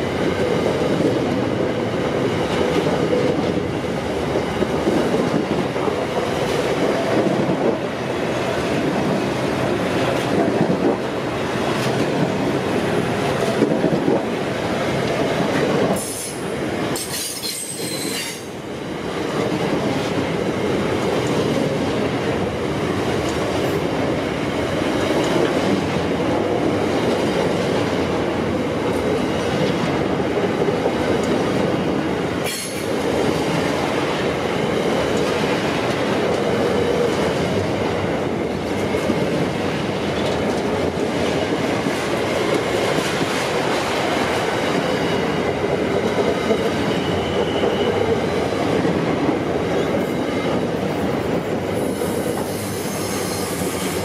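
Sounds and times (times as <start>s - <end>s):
train wheels rumbling on rails: 0.0s - 54.0s
faint wheel squeal: 46.9s - 48.1s, 52.0s - 54.0s.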